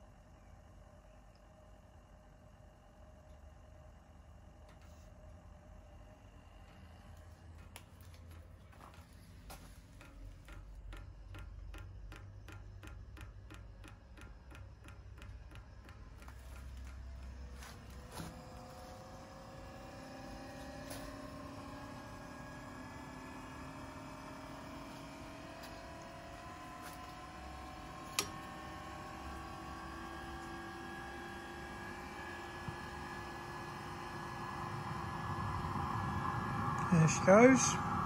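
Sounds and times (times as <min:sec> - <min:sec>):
blower motor whine: 0:00.0 - 0:38.0
fuel pump ticking: 0:09.3 - 0:18.7
click: 0:28.1 - 0:28.4.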